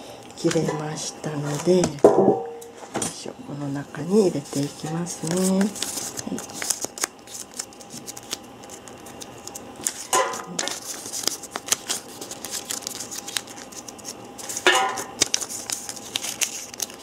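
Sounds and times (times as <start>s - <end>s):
paper crinkling and rustling: 4.1s - 17.0s.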